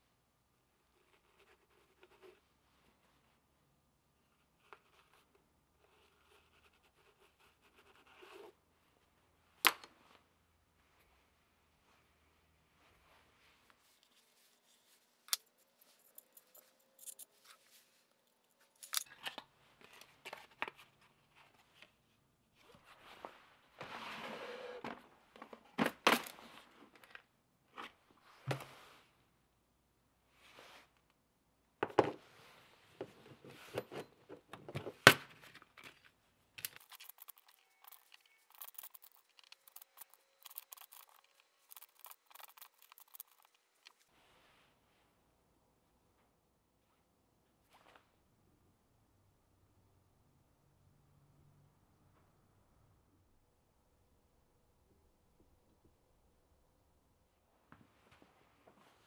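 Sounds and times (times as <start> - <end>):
metal tools clicking and scraping: 15.3 - 17.5, 36.6 - 44.0
small steel parts clinking in tin: 15.8 - 17.4, 36.7 - 44.0.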